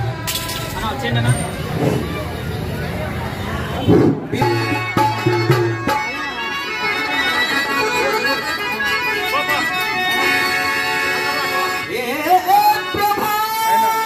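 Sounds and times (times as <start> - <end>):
harmonium sustained chords: 4.4 - 14.0.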